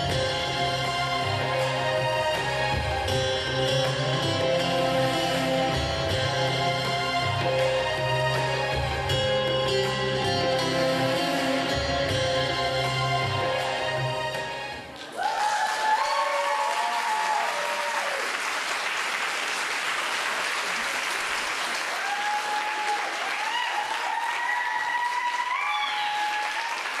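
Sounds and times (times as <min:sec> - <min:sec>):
music: 0:00.0 - 0:15.1
people cheering: 0:13.1 - 0:27.0
audience applauding: 0:13.4 - 0:27.0.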